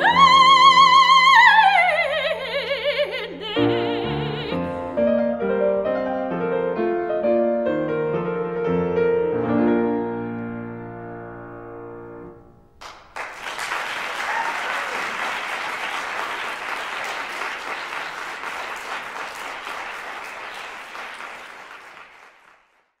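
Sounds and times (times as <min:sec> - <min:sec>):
audience applause: 0:12.8 - 0:22.9.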